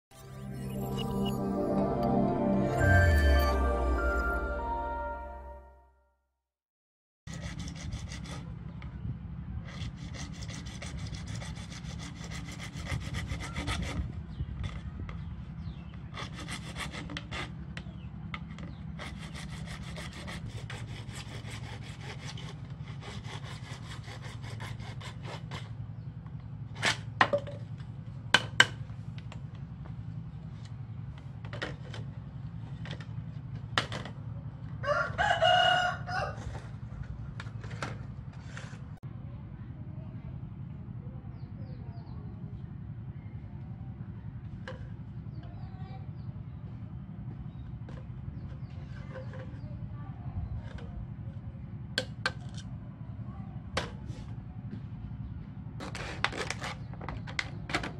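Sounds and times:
rooster crowing: 0:34.8 - 0:36.7.

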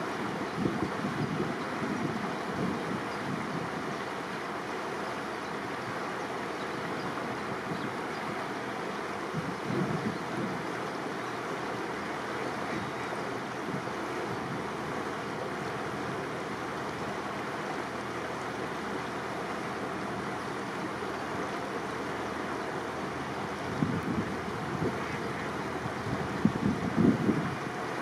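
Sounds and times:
wind and water rushing: 0:00.0 - 0:28.0
wind buffets on microphone: 0:00.2 - 0:04.0, 0:06.8 - 0:08.4, 0:09.2 - 0:10.8, 0:12.6 - 0:16.3, 0:23.3 - 0:27.9.

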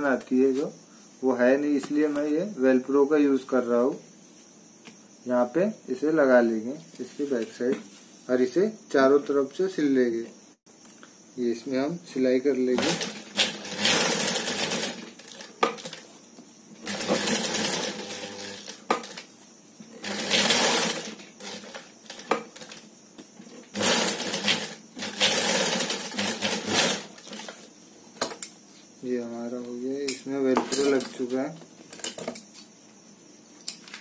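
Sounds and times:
industrial sewing machine stitching: 0:12.8 - 0:16.0, 0:16.8 - 0:19.2, 0:20.0 - 0:22.8, 0:23.7 - 0:27.6.

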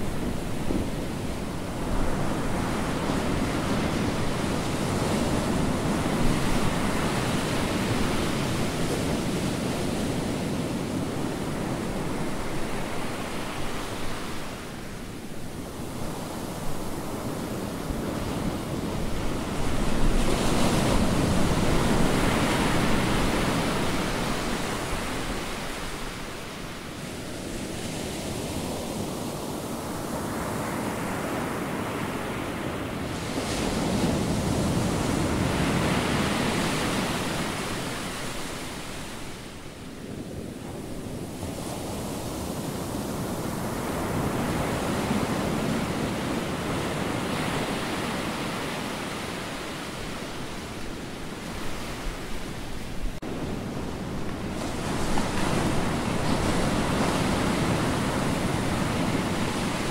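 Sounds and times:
ocean surf breaking: 0:00.0 - 0:59.9.

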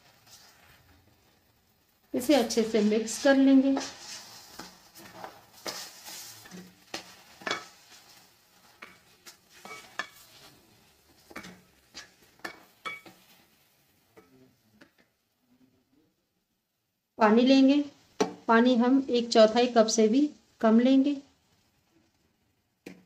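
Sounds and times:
vegetables sizzling in oil: 0:00.0 - 0:15.2, 0:17.2 - 0:23.0
spatula scraping and tapping metal pan: 0:02.1 - 0:15.1.

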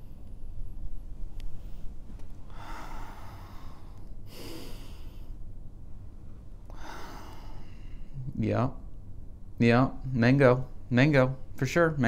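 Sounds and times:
man breathing out through nose: 0:02.5 - 0:05.4, 0:06.7 - 0:08.2.

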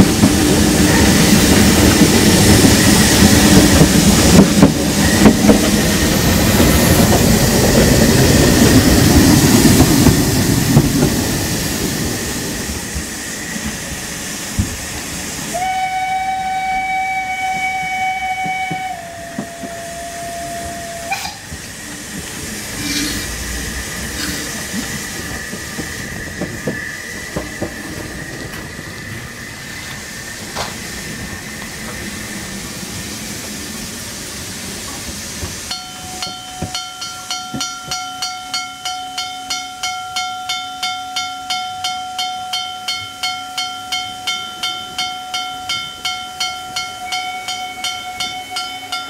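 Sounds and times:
steam hissing: 0:00.0 - 0:40.0
steam locomotive rail clatter: 0:00.0 - 0:49.0
steam whistle blast: 0:15.5 - 0:21.6, 0:22.8 - 0:24.6, 0:46.7 - 0:49.0.

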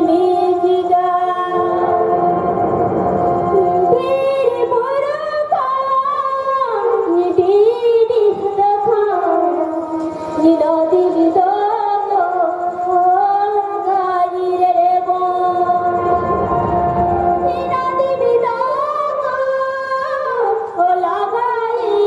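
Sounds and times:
woman singing slow melody: 0:00.0 - 0:02.4, 0:03.5 - 0:16.2, 0:17.4 - 0:22.0
backing music: 0:00.0 - 0:05.3, 0:15.4 - 0:19.2.

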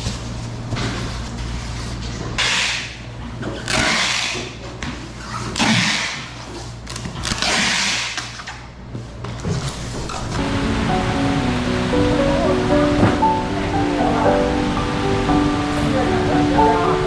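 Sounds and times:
packing tape ripping off roll: 0:06.8 - 0:08.6.

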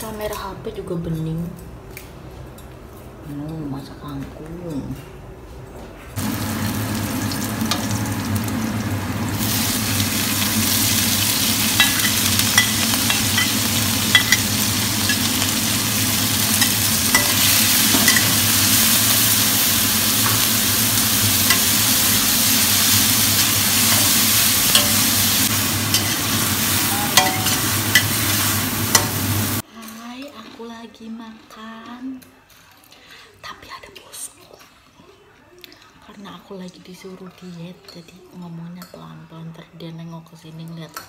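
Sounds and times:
chillies sizzling in a wok: 0:06.2 - 0:30.4.

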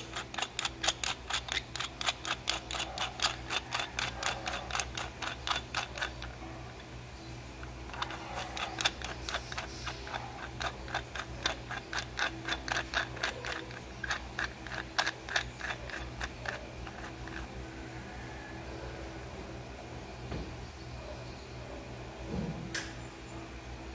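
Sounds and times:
metal tubes clicking together: 0:00.0 - 0:06.9, 0:07.6 - 0:17.5
steady low hum: 0:00.0 - 0:23.9.

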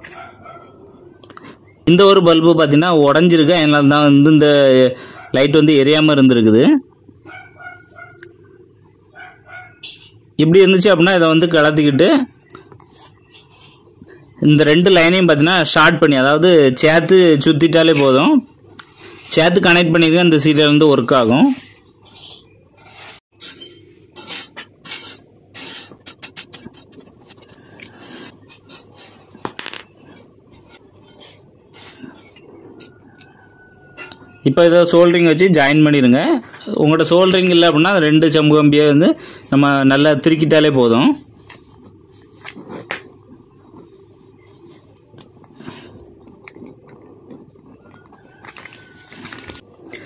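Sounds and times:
wires scraping and rubbing: 0:09.2 - 0:38.8, 0:39.4 - 0:50.0
light rubbing of wires: 0:40.2 - 0:49.9.

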